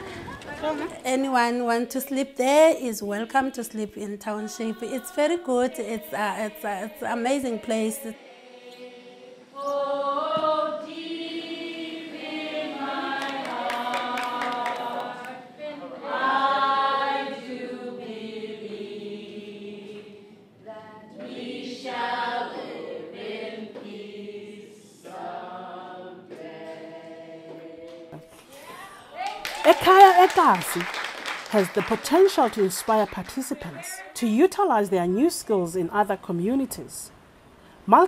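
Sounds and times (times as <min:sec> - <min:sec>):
group singing without instruments: 0:02.0 - 0:28.6.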